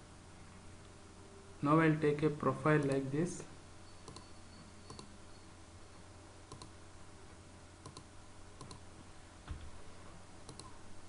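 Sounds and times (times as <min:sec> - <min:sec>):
low steady hum: 0:00.0 - 0:11.0
computer mouse clicks: 0:04.0 - 0:04.3, 0:04.9 - 0:05.1, 0:06.5 - 0:06.8, 0:07.8 - 0:08.8, 0:10.4 - 0:10.8.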